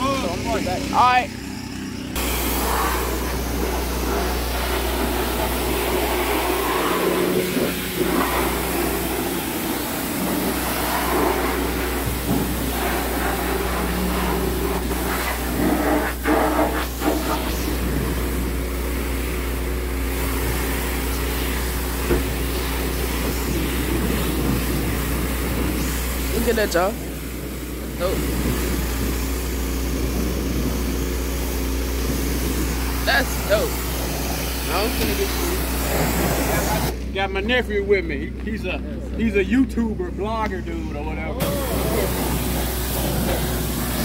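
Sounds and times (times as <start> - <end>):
low engine hum: 0.0 - 44.0
hissing water spray: 2.2 - 37.0, 41.4 - 44.0.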